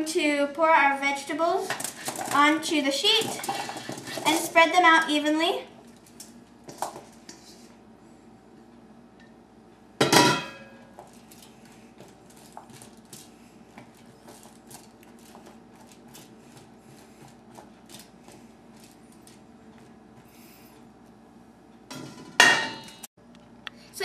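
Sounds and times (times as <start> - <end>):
spoon scraping metal baking sheet: 1.6 - 4.6, 7.3 - 7.7
metal bowl clanging: 3.2 - 4.5, 10.0 - 10.9, 21.9 - 23.1.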